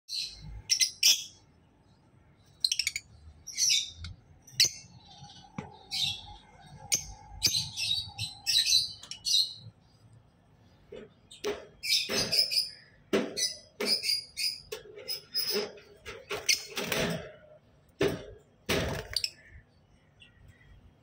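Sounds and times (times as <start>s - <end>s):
lovebirds chirping: 0.1s - 15.6s.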